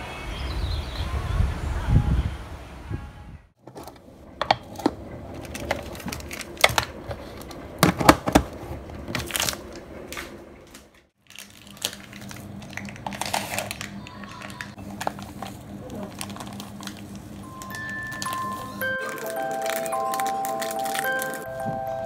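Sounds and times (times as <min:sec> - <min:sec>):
steady low hum: 0:01.6 - 0:22.0
objects being rummaged: 0:03.6 - 0:22.0
plastic packaging crinkling: 0:04.8 - 0:07.6, 0:08.6 - 0:22.0.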